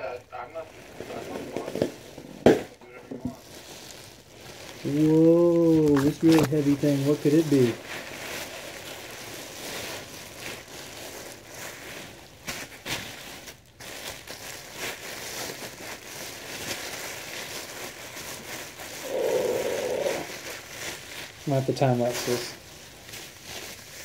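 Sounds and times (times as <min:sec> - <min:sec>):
plastic wrapping crinkling: 0:00.3 - 0:24.0.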